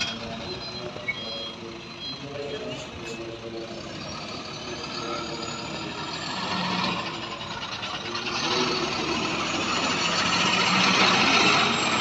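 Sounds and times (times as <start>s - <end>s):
reversing alarm beeping: 0.0s - 3.0s
diesel truck engine running: 0.0s - 12.0s.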